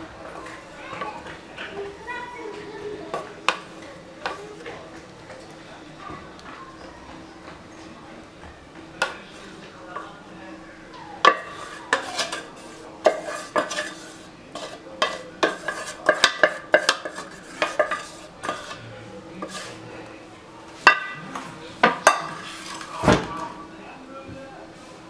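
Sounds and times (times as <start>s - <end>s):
spatula scraping metal pot: 11.3s - 19.8s.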